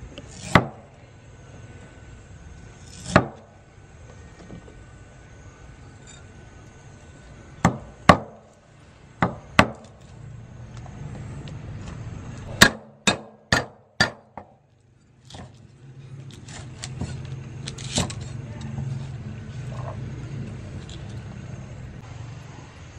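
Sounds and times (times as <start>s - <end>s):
cleaver chopping on wooden block: 12.6s - 14.6s.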